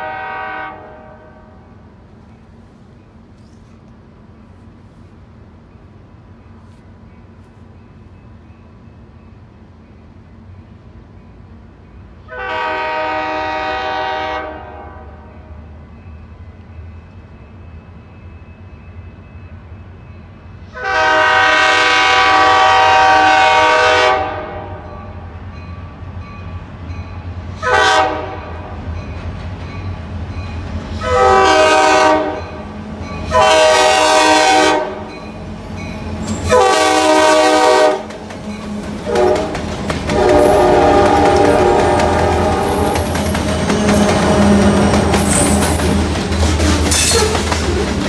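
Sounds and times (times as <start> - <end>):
locomotive air horn blasts: 0.0 - 1.6, 12.3 - 15.5, 20.7 - 25.0, 27.6 - 28.7, 31.0 - 32.6, 33.3 - 35.2, 36.4 - 38.1, 38.7 - 43.1
low train rumble: 0.0 - 48.0.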